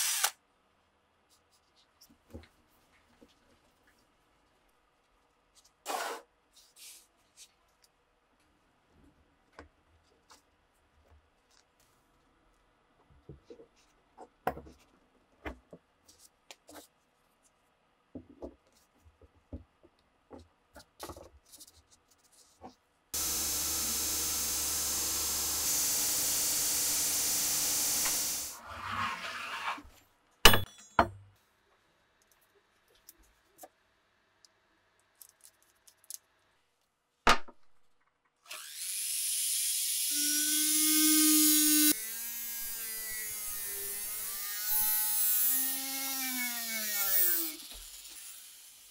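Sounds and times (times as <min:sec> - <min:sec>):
power tool running: 0:23.2 - 0:28.6
rotary tool sanding wood: 0:23.2 - 0:29.8.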